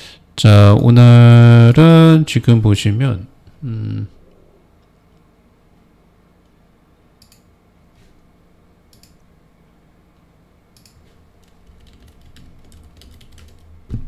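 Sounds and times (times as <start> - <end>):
keyboard keys tapped: 10.8 - 14.0.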